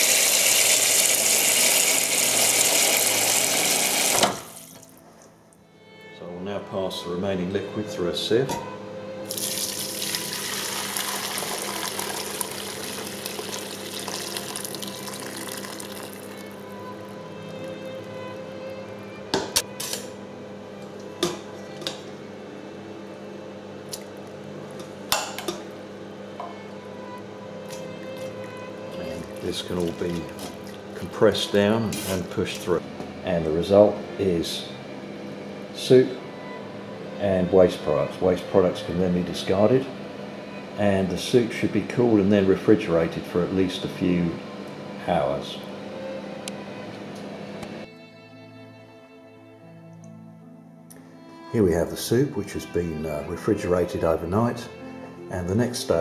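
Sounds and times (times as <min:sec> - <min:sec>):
tap water pouring into metal pot: 0:00.0 - 0:04.9, 0:09.3 - 0:16.3, 0:29.2 - 0:30.8.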